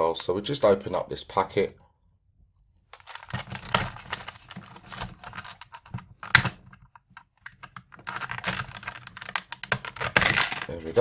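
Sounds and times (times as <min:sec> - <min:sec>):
plastic snapping: 0:02.9 - 0:10.4
plastic packaging crackling: 0:03.0 - 0:06.6, 0:07.4 - 0:10.8.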